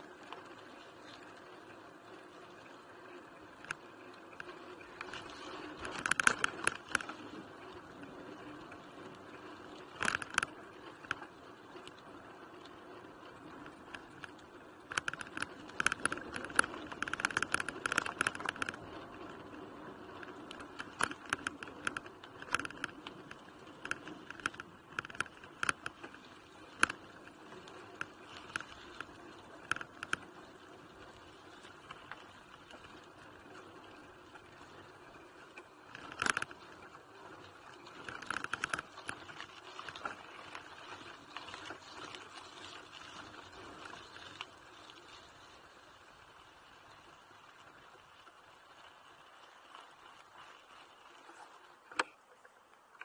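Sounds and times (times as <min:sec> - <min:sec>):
bike parts rattling and clicking: 0:14.9 - 0:18.8, 0:20.8 - 0:22.9.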